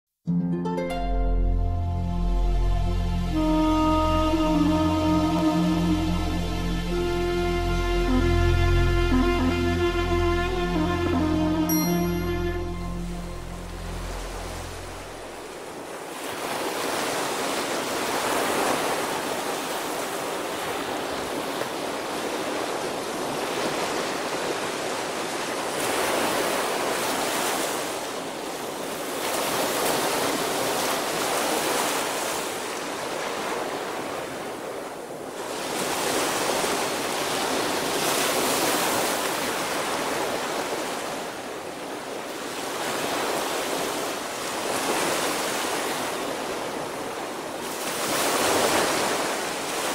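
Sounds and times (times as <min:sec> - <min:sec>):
small waves breaking on sand: 0:15.4 - 0:49.9.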